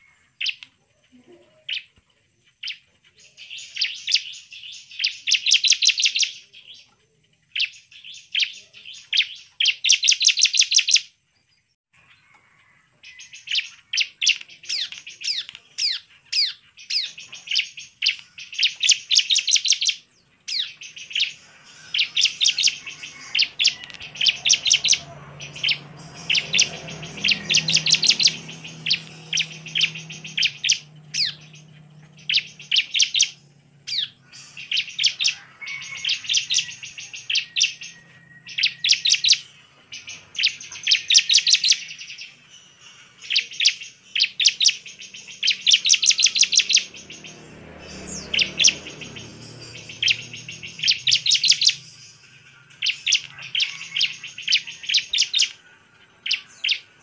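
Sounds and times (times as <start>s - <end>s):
bird singing rapid trills: 2.5s - 6.9s, 7.5s - 11.1s, 13.0s - 55.6s, 56.2s - 57.0s.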